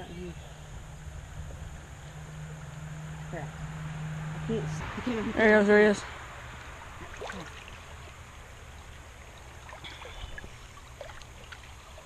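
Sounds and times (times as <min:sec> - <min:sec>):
creek water trickling: 0:00.0 - 0:12.0
person wading through water: 0:06.6 - 0:12.0.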